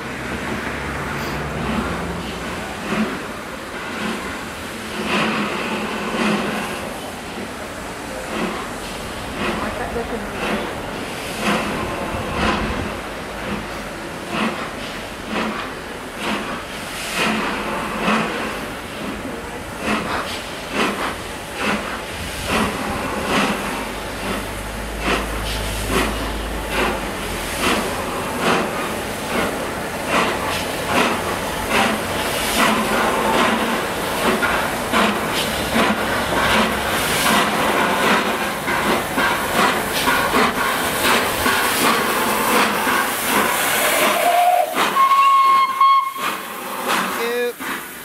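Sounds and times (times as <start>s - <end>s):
steam hiss: 0.0s - 48.0s
steam locomotive exhaust beats: 0.0s - 48.0s
steam whistle: 44.0s - 46.4s.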